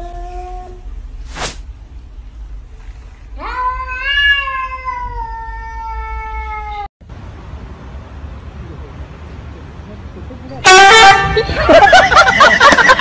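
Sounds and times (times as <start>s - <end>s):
cat meowing: 3.4s - 6.9s.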